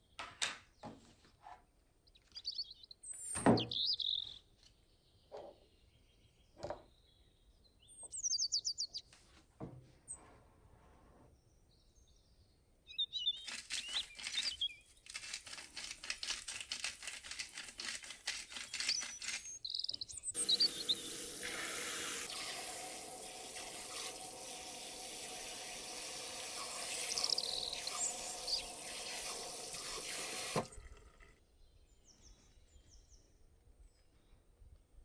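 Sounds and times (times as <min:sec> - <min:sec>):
salt grinder clicking: 0:13.4 - 0:19.6
tap water running into bowl: 0:20.4 - 0:31.4.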